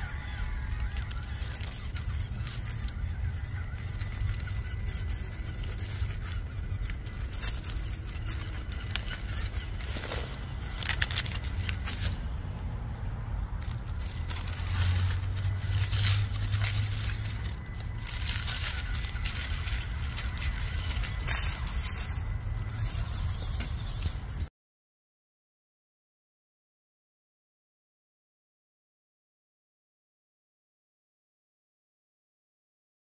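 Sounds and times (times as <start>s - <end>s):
crunching on gravel: 0.0s - 24.5s
low rumble: 0.0s - 24.5s.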